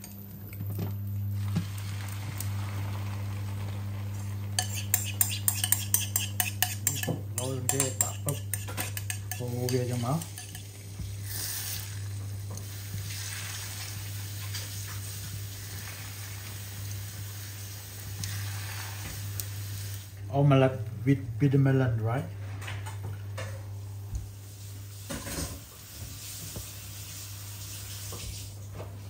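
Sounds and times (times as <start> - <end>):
egg mixture sizzling in a pan: 1.4 - 20.2, 24.3 - 28.6
spoon scraping bowl and pan: 4.2 - 12.0.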